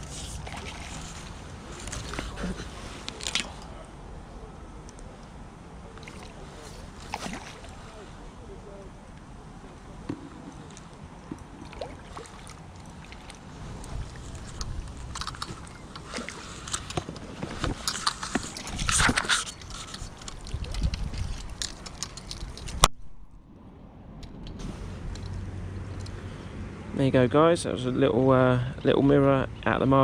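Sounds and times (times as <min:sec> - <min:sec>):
net and tackle rustling and knocking: 0:00.0 - 0:03.7, 0:06.0 - 0:08.1, 0:10.0 - 0:22.9
water sloshing and splashing: 0:00.0 - 0:03.8, 0:05.9 - 0:08.4, 0:09.9 - 0:22.9.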